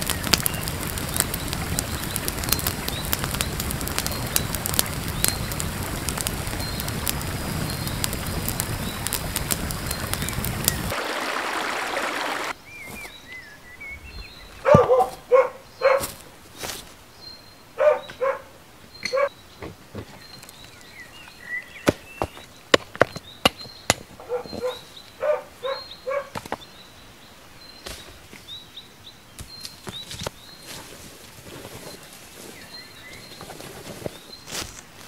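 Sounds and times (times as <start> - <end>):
campfire crackling and hissing: 0.0 - 12.6, 20.2 - 21.8, 26.8 - 35.0
short bark-like calls: 17.8 - 19.3.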